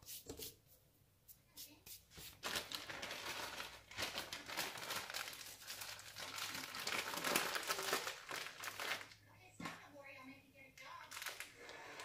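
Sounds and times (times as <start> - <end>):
packaging crinkling: 2.4 - 9.2, 11.1 - 11.6.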